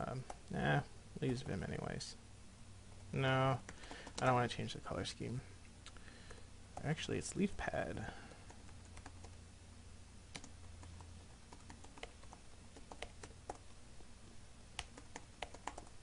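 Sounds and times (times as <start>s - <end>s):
low steady hum: 0.0s - 16.0s
keyboard keystrokes: 3.7s - 4.3s, 10.3s - 13.6s, 14.8s - 15.9s.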